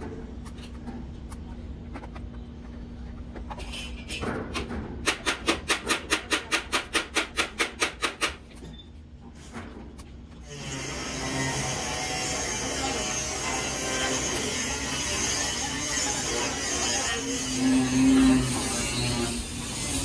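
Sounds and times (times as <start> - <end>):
welding arc pulsing: 10.5 - 20.0.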